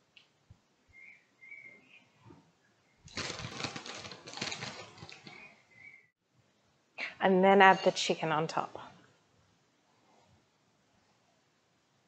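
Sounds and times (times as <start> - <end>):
plastic bag crinkling: 3.1 - 5.5.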